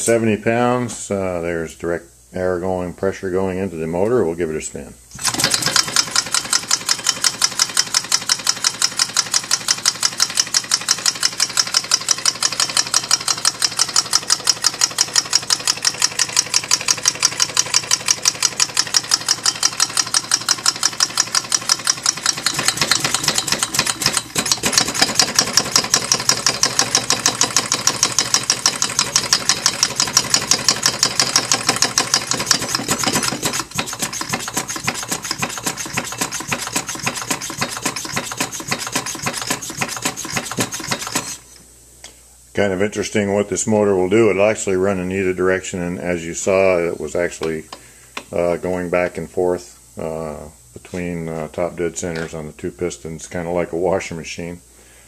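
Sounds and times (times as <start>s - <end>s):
air motor exhaust puffs: 5.1s - 42.6s.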